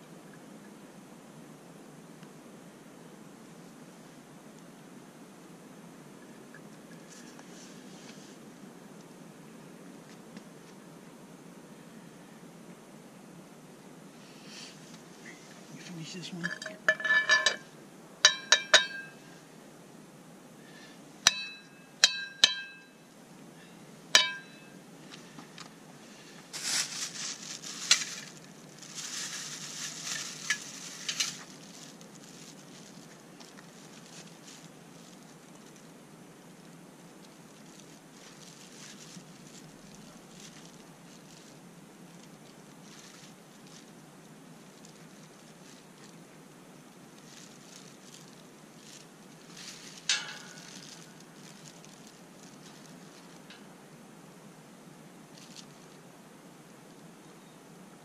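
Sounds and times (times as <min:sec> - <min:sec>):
low background hiss: 0:00.0 - 0:58.0
crinkling rustle: 0:06.2 - 0:09.2, 0:14.2 - 0:19.4, 0:24.1 - 0:53.8, 0:55.2 - 0:56.1
ringing clinks of hard objects: 0:16.4 - 0:17.6, 0:18.3 - 0:19.2, 0:21.3 - 0:23.0, 0:24.2 - 0:24.8.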